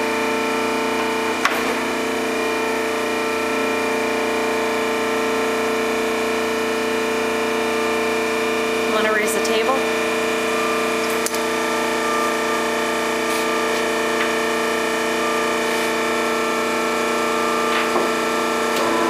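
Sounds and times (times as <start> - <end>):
surface grinder humming: 0.0 - 19.0.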